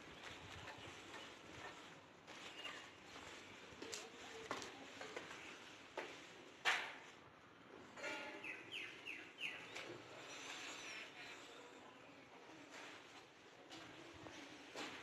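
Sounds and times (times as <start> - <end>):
footsteps on cement floor: 0.1 - 6.4, 12.7 - 15.0
bird chirping: 8.4 - 9.9.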